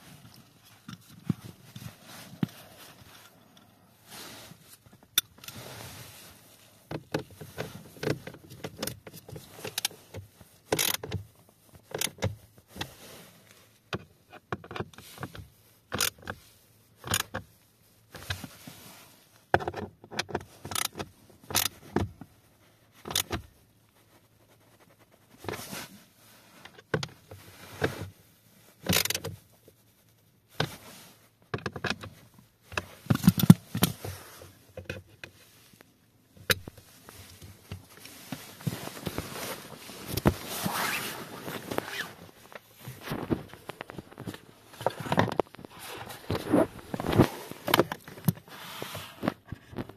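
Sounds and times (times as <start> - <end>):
socket ratchet clicking: 10.8 - 11.1.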